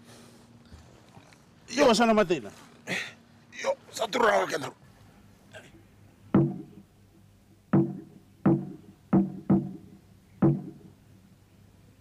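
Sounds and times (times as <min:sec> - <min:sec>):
drum hits: 0:06.3 - 0:06.9, 0:07.7 - 0:11.0.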